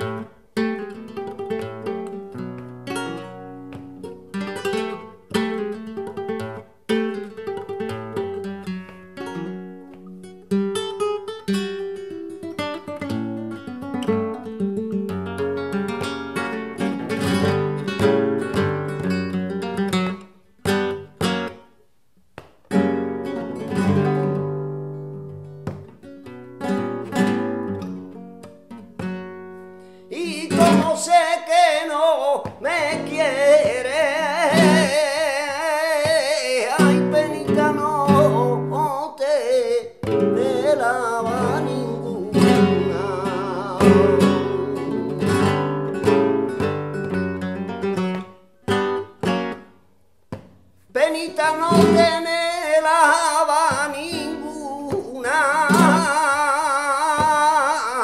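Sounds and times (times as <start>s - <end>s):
acoustic guitar playing: 0.0s - 58.0s
man singing: 30.1s - 46.7s, 50.9s - 58.0s.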